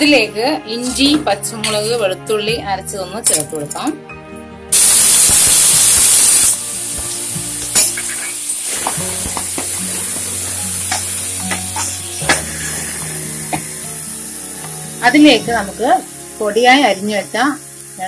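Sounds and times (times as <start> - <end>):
paste sizzling in hot oil: 4.7 - 18.0.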